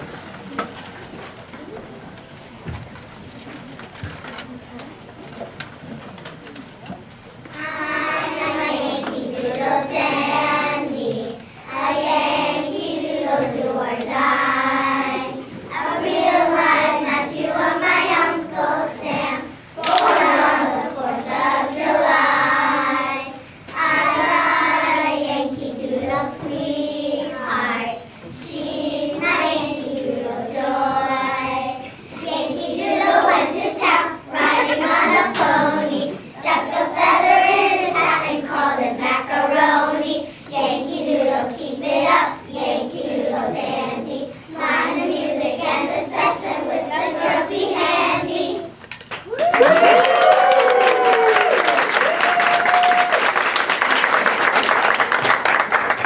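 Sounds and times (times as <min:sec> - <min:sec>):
children singing: 0:07.6 - 0:48.8
audience applause: 0:49.2 - 0:56.0.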